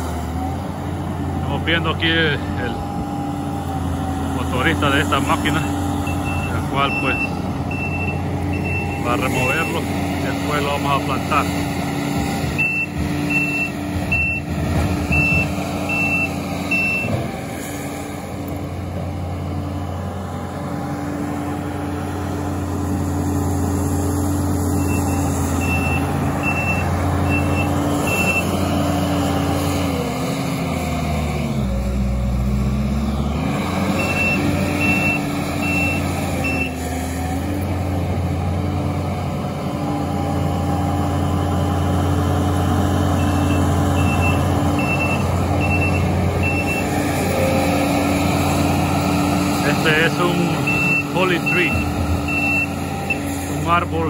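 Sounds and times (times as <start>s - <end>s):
diesel engine running: 0.0s - 54.0s
reversing alarm beeping: 5.4s - 9.9s, 12.6s - 17.2s, 24.7s - 28.6s, 33.9s - 36.8s, 43.2s - 47.8s, 49.7s - 53.9s.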